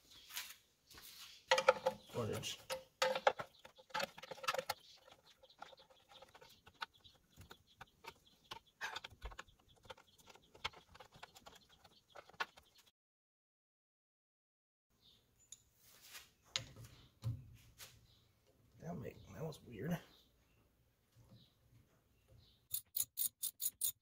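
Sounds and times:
metallic clicks and taps of wrench: 22.7s - 24.0s.

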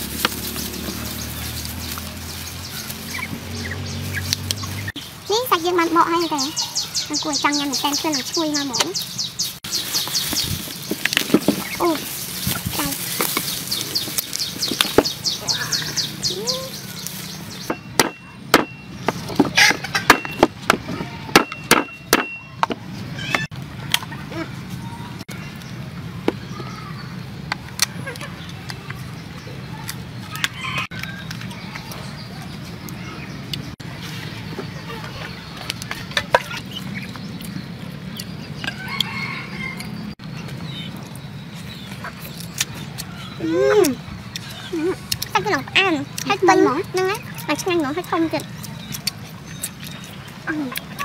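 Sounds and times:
chicken calling: 11.5s - 17.0s
wooden pounder knocking claw: 17.7s - 22.8s.

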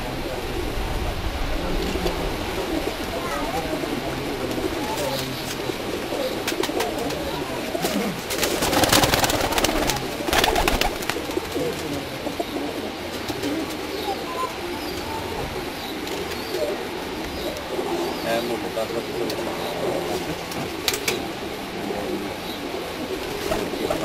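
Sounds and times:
pigeons cooing: 0.0s - 24.0s
pigeon wing claps: 6.4s - 12.0s, 20.5s - 21.3s.

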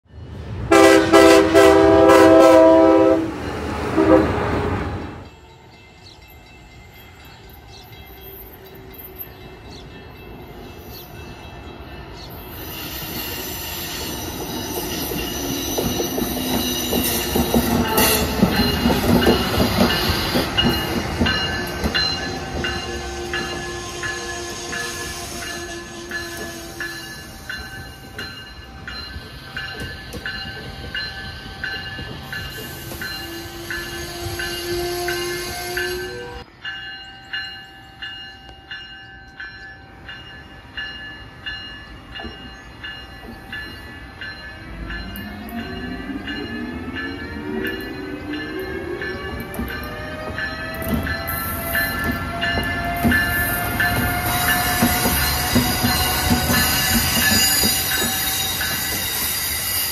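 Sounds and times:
high-speed train passing: 0.0s - 59.9s
train horn chord: 0.7s - 5.2s, 22.4s - 27.2s, 32.9s - 36.5s
wheels clicking on rails: 13.7s - 24.7s, 42.2s - 59.9s.

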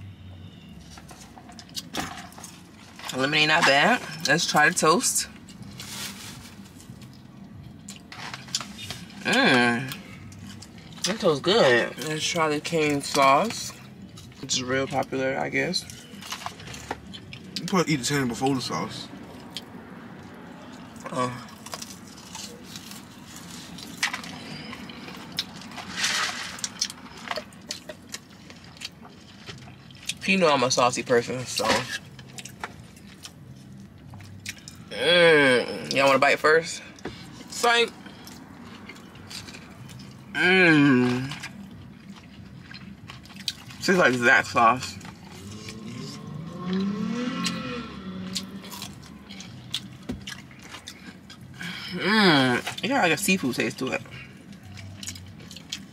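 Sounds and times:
chewing and biting: 19.1s - 30.2s, 31.5s - 34.9s, 37.0s - 44.2s, 45.0s - 51.7s, 54.0s - 55.9s.

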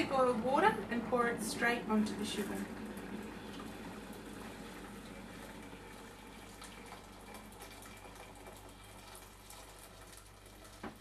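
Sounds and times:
water pouring into a saucepan: 2.3s - 11.0s.

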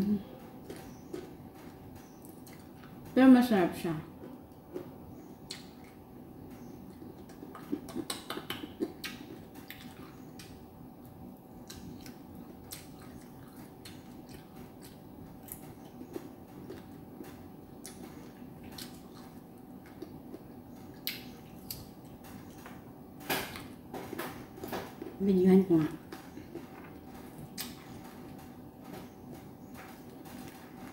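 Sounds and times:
steady low hum: 0.0s - 30.9s.

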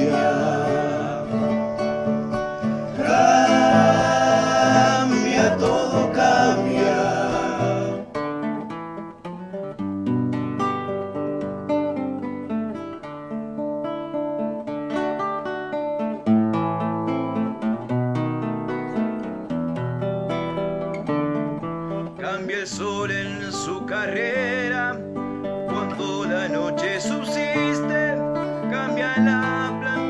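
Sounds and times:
person singing: 0.0s - 8.1s, 25.7s - 30.0s
acoustic guitar instrumental: 0.0s - 30.0s.

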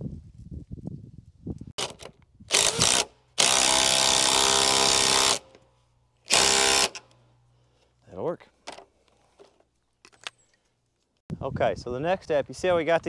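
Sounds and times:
power tool driving bolts: 1.8s - 5.6s, 6.2s - 7.2s.

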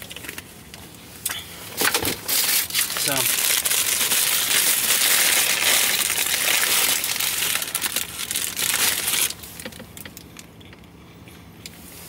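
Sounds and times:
paper bag crinkling: 1.8s - 10.2s.

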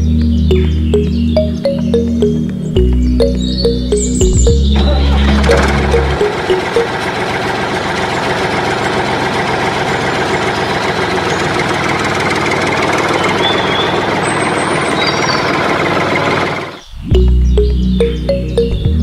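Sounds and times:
faint high chirps: 0.0s - 7.0s
tractor engine running: 0.0s - 19.0s.

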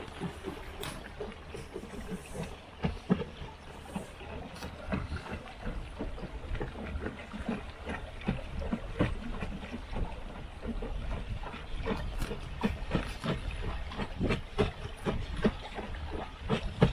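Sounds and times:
water slapping against boat hull: 0.0s - 16.9s.

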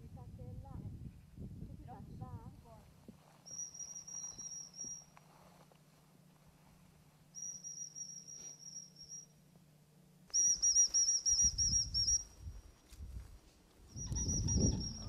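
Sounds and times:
dog whistle: 7.4s - 9.3s, 10.3s - 12.2s.

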